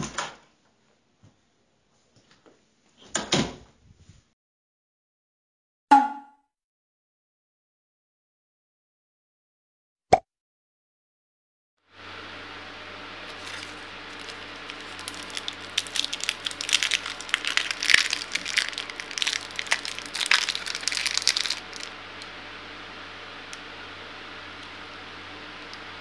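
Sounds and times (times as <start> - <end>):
low hum: 12.0 - 26.0
wrapper crinkling and tearing: 13.3 - 21.9.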